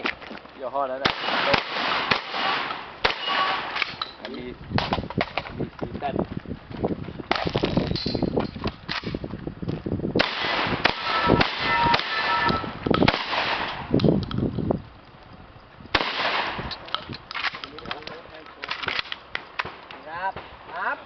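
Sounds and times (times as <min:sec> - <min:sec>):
shotgun shots: 0:01.0 - 0:04.0, 0:10.2 - 0:14.0, 0:15.9 - 0:16.8.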